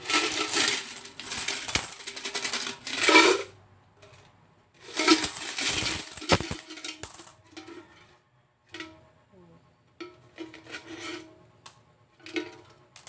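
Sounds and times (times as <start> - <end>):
coins clattering into bowl: 0.0 - 3.5, 4.8 - 8.1.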